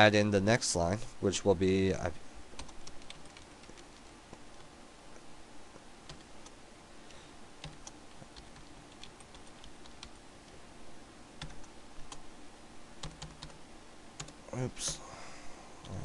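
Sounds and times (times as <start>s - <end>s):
faint steady hiss: 0.0s - 16.0s
keyboard keys clicking: 2.6s - 4.1s, 7.6s - 10.2s, 13.0s - 13.6s.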